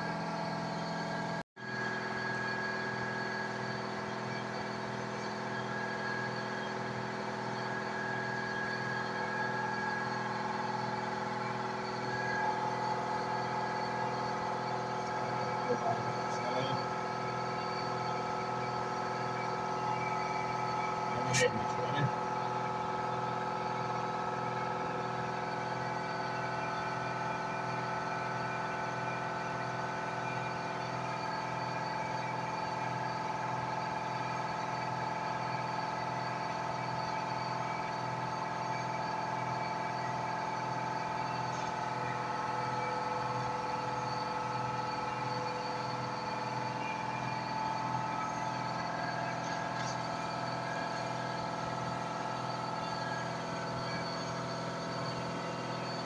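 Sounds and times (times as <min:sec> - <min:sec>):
laser engraver electric whine and hum: 0:00.0 - 0:56.0.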